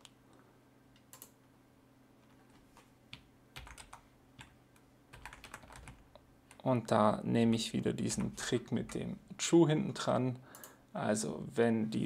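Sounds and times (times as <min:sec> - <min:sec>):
faint computer keyboard typing: 0:00.9 - 0:01.4, 0:02.2 - 0:06.7, 0:10.5 - 0:10.8.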